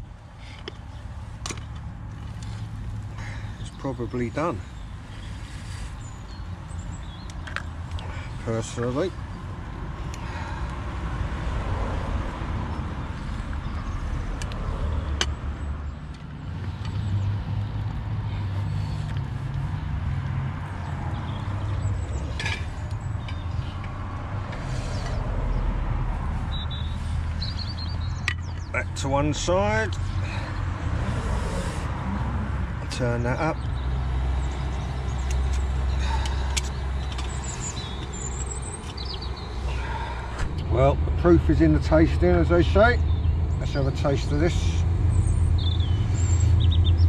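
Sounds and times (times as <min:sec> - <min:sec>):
low engine drone: 0:39.5 - 0:43.2.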